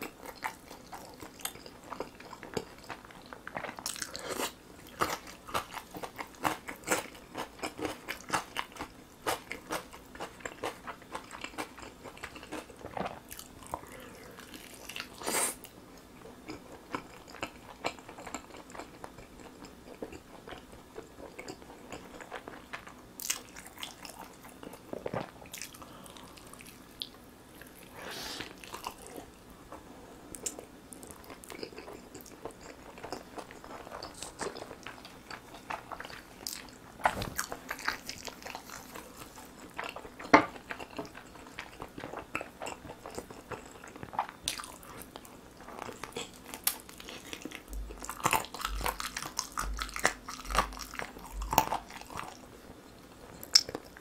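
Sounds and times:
wet bites and chewing: 0:45.8 - 0:52.4.

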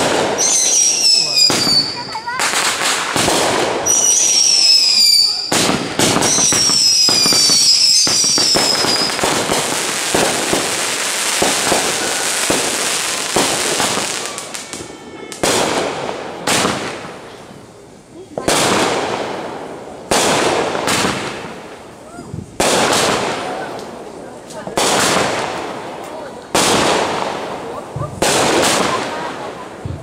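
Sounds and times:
fireworks bangs: 0:00.0 - 0:30.0
fireworks crackling: 0:00.0 - 0:30.0
firework whistles falling in pitch: 0:00.3 - 0:02.2, 0:03.8 - 0:10.2.

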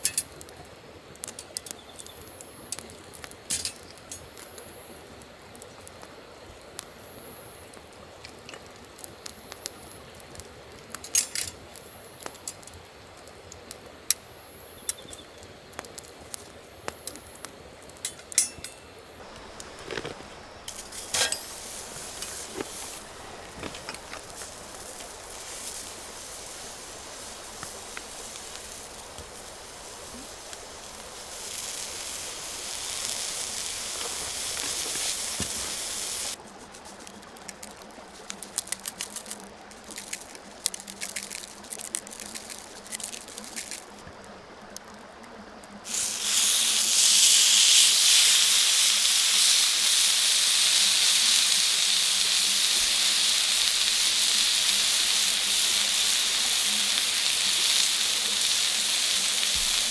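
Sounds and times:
sausage sizzling on griddle: 0:00.0 - 0:44.1, 0:45.6 - 0:59.9
campfire crackling and popping: 0:00.0 - 0:59.9
seasoning ticking onto steak: 0:45.9 - 0:59.9.

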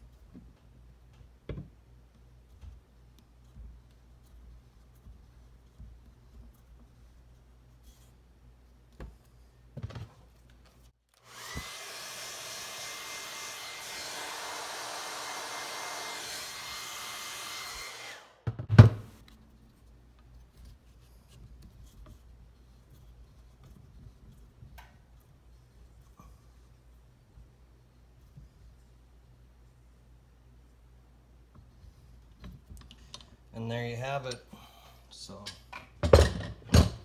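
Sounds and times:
hair dryer blowing: 0:11.2 - 0:18.4.

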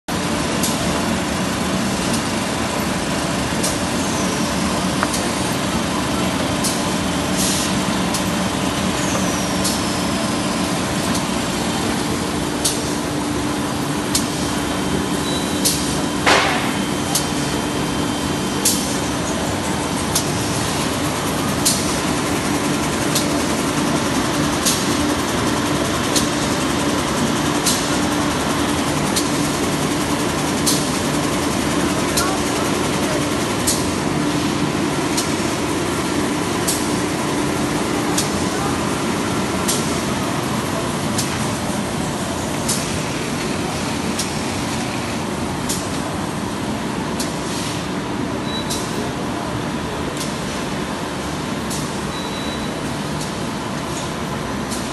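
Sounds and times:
machine motors humming: 0:00.1 - 0:54.9
machine clacking: 0:15.6 - 0:17.9.

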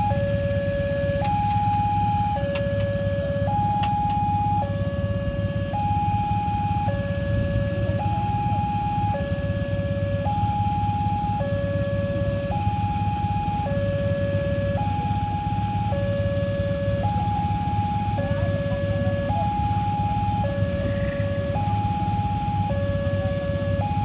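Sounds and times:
two-tone level crossing alarm: 0:00.0 - 0:24.0.

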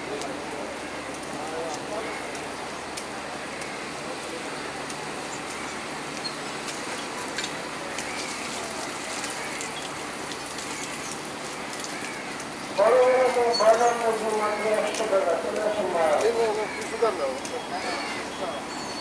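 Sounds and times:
train hissing with low hum: 0:00.0 - 0:14.0.

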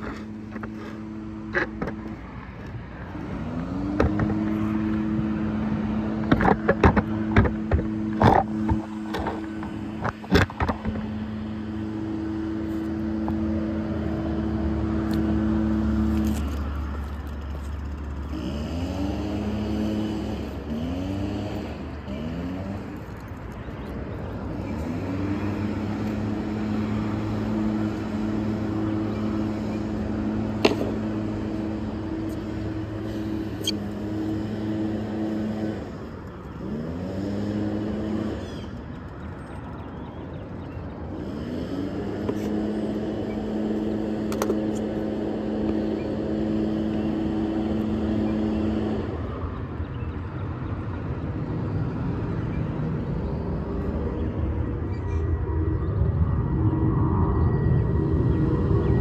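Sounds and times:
car engines accelerating: 0:00.0 - 0:59.0.

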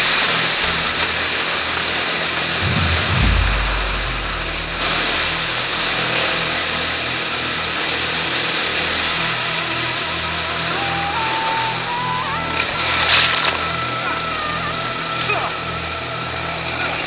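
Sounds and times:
wind rumble on microphone: 0:02.6 - 0:06.6.

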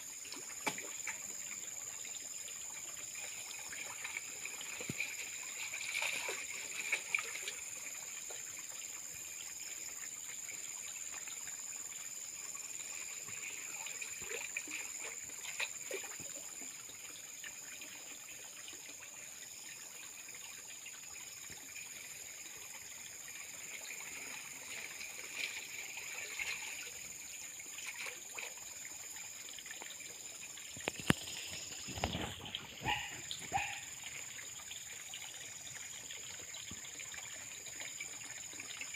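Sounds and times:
muddy water sloshing: 0:03.7 - 0:07.6.

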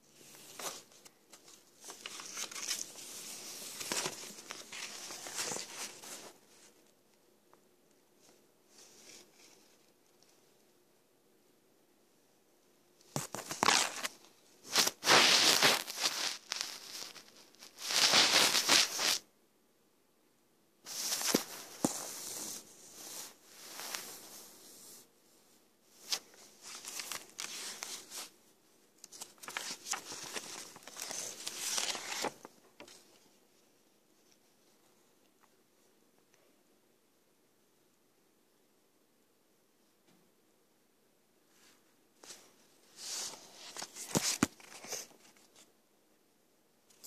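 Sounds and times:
notebook pages rustling: 0:00.1 - 0:06.8, 0:13.1 - 0:19.2, 0:20.9 - 0:25.0, 0:26.0 - 0:28.4, 0:29.0 - 0:33.3, 0:42.2 - 0:45.7.

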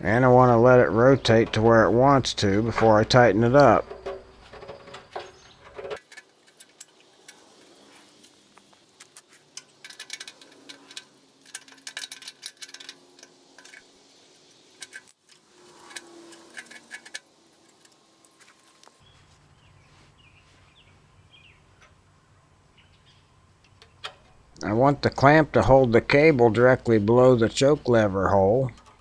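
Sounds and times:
sped-up metal clicks and clinks: 0:05.9 - 0:18.9.

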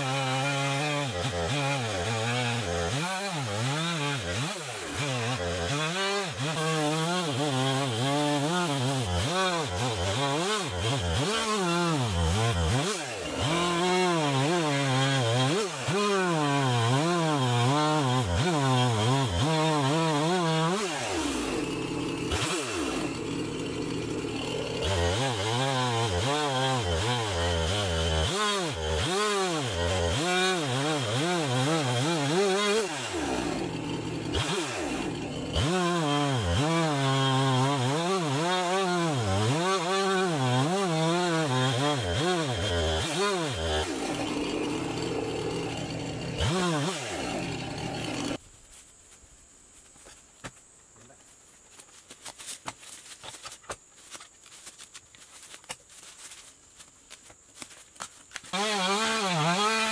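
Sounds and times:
chainsaw cutting a log: 0:00.0 - 0:48.4, 0:58.0 - 0:59.9.

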